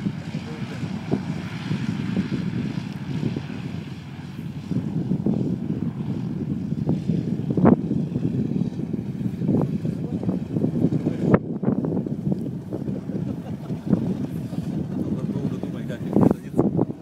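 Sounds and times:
propeller engine rumbling: 0:00.0 - 0:17.0.

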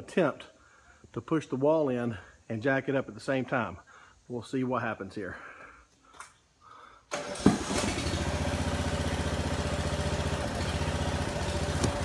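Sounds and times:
small pump engine running: 0:07.1 - 0:12.0.

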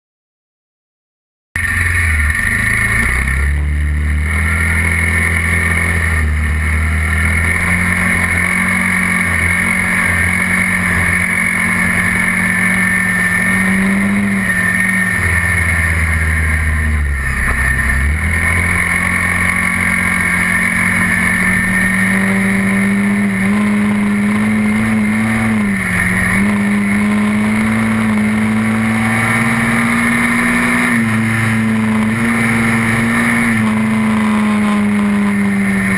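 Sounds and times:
quad bike engine running: 0:01.6 - 0:35.9.

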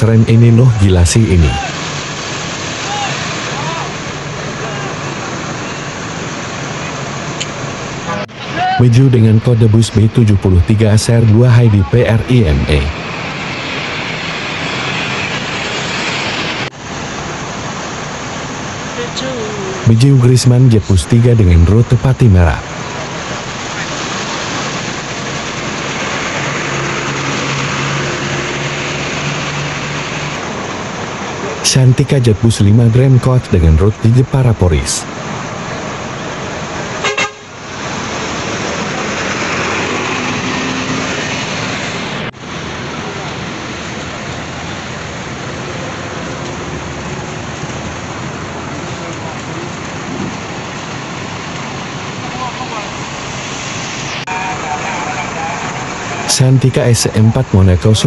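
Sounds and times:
bus engine and road noise: 0:00.0 - 0:58.0
bus horn toot: 0:37.0 - 0:37.6.

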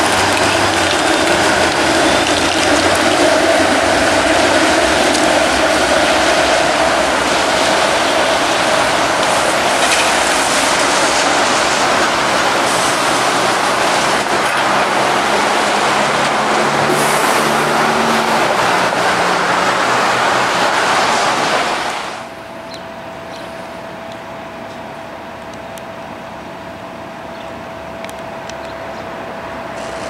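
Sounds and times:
traffic on wet road: 0:00.0 - 0:22.4, 0:27.8 - 0:30.0
streetcar rolling on rails: 0:00.0 - 0:30.0
low engine hum: 0:12.4 - 0:20.9.

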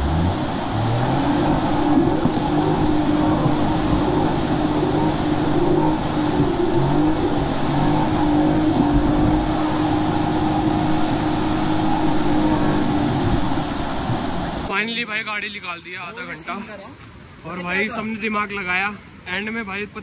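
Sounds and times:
vehicle engine droning: 0:00.0 - 0:14.7.

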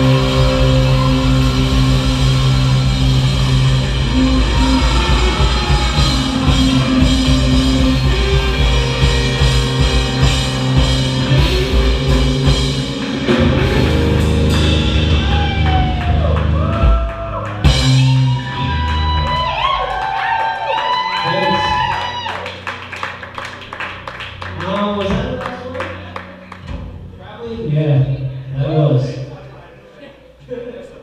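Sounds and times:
electric bass: 0:00.0 - 0:20.6
drum kit: 0:00.0 - 0:22.2
electric guitar: 0:00.0 - 0:22.7.

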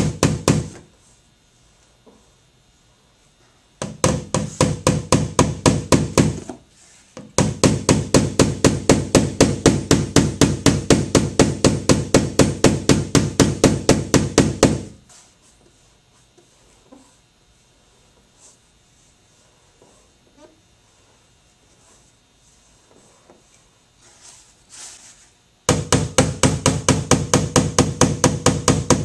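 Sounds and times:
hammer tapping on steel panel: 0:03.8 - 0:06.4, 0:07.2 - 0:15.0, 0:25.7 - 0:29.0.

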